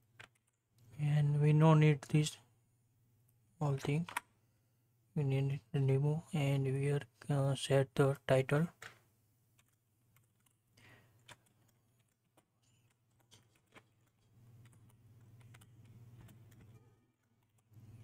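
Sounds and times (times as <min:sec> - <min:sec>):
typing on computer keyboard: 0:09.6 - 0:10.6, 0:11.2 - 0:17.8.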